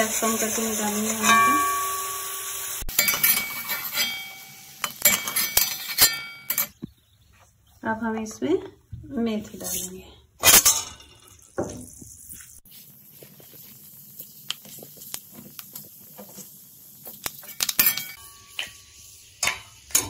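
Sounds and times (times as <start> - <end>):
seeds sizzling in hot oil: 0.0 - 5.8, 11.4 - 20.0.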